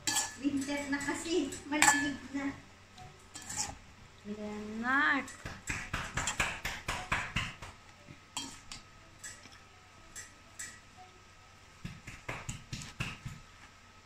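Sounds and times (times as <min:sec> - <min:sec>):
metal spoon clinking on steel bowl: 0:00.0 - 0:02.4, 0:03.3 - 0:03.8, 0:08.4 - 0:10.8.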